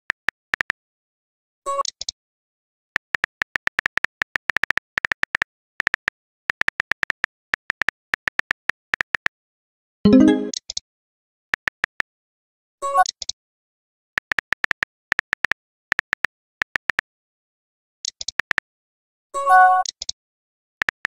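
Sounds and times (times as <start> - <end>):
short pitched alert tone: 10.1 - 10.5.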